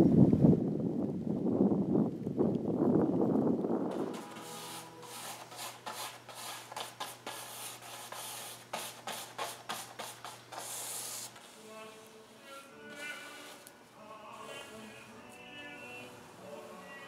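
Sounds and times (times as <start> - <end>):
paintbrush scrubbing paint: 3.9 - 15.0.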